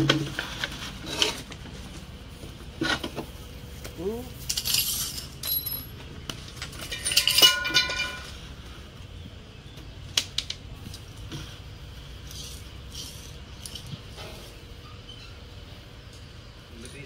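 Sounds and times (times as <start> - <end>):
hard objects clinking and rattling: 4.3 - 8.5.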